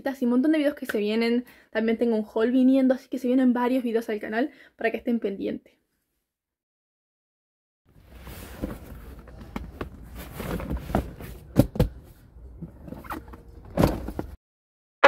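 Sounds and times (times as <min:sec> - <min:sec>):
cardboard boxes scraping and handling: 0:08.0 - 0:14.4.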